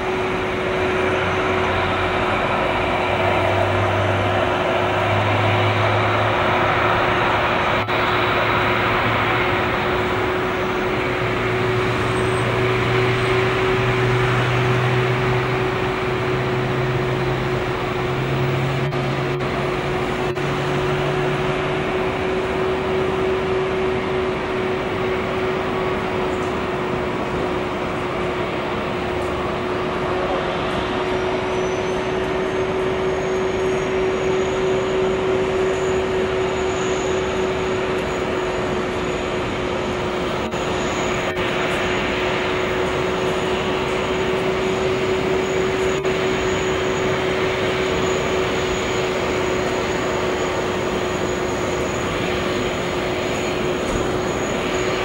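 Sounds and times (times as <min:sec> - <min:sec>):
low hum: 0:00.0 - 0:30.4
jet engines whining: 0:00.0 - 0:55.0
faint high whistle rising: 0:31.3 - 0:55.0.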